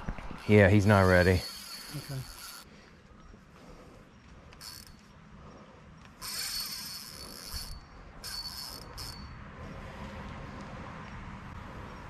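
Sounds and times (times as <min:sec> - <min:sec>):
fishing reel drag buzzing: 0:00.4 - 0:02.7, 0:04.4 - 0:09.4.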